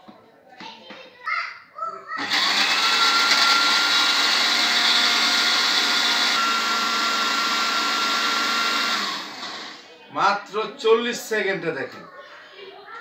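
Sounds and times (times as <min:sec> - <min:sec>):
blender motor running: 0:02.2 - 0:09.8.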